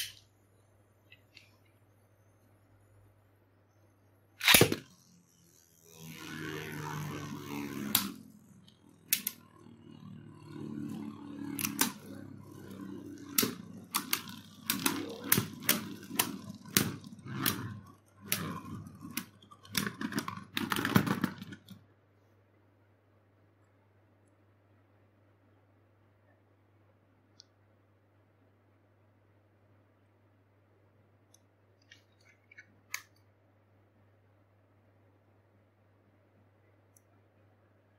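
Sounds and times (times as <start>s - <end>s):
spinning tops whirring: 4.4s - 21.8s
spinning tops clashing: 10.4s - 21.4s.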